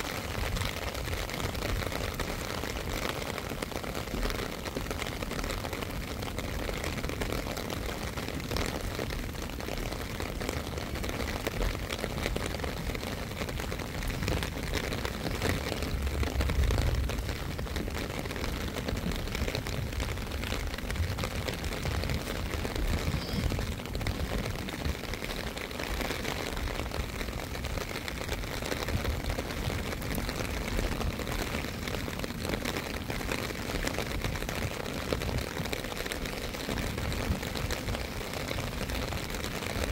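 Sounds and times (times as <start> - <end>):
steady rain: 0.0 - 39.9
wind buffeting microphone: 0.0 - 39.9.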